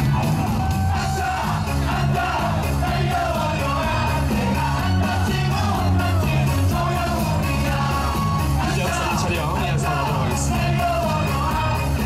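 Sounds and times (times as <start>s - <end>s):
pop music over loudspeakers: 0.0s - 12.0s.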